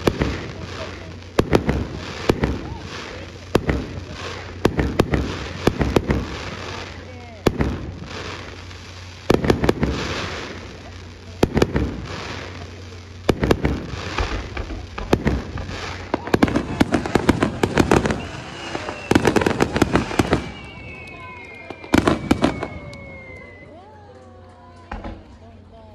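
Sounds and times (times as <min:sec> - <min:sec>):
fireworks bursting with crackle: 0:00.0 - 0:25.9
high falling whistle: 0:18.0 - 0:23.9.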